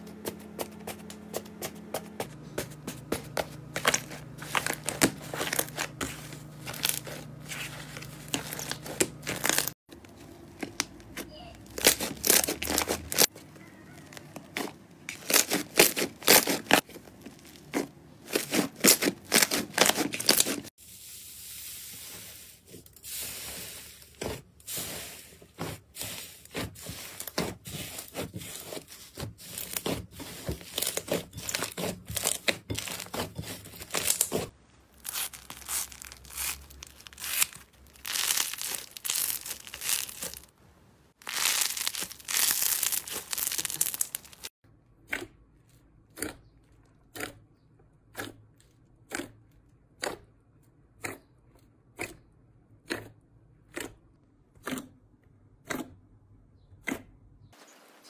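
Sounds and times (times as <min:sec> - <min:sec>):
slime crackling and popping: 0:08.2 - 0:09.8, 0:11.7 - 0:13.3, 0:14.1 - 0:17.7, 0:30.8 - 0:40.5, 0:41.2 - 0:44.5.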